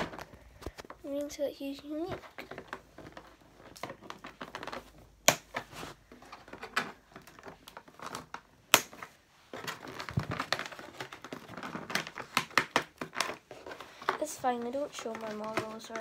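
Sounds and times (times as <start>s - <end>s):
plastic packaging crinkling: 1.6s - 16.0s
sharp plastic snaps: 2.4s - 5.6s, 6.4s - 13.4s.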